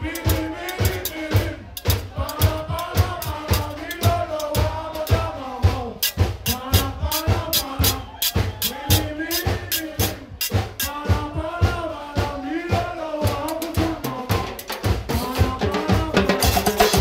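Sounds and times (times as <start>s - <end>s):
metal hand percussion: 0.0s - 5.2s, 6.0s - 11.0s, 16.3s - 17.0s
drums struck with sticks: 0.0s - 17.0s.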